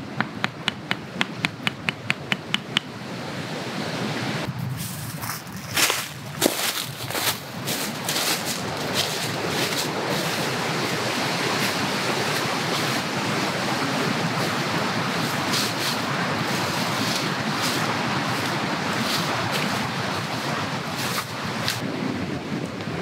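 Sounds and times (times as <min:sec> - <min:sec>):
dry leaves crunching underfoot: 0:04.5 - 0:13.0, 0:15.2 - 0:21.8.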